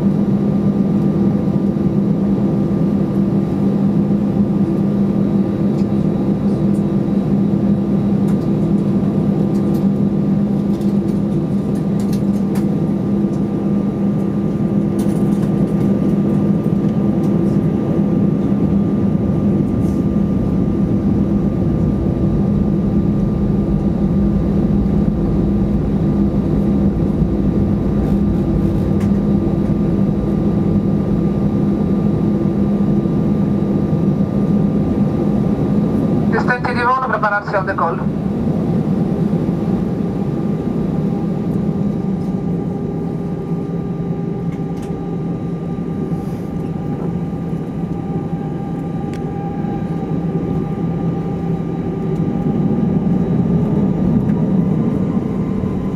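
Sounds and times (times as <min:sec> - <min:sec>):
jet engines droning in cabin: 0:00.0 - 0:55.9.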